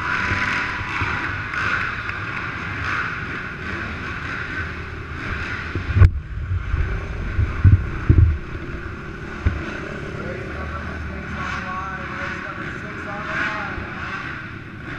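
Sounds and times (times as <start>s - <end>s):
quad engines droning: 0.0s - 14.9s
thumps on the microphone: 7.6s - 8.4s.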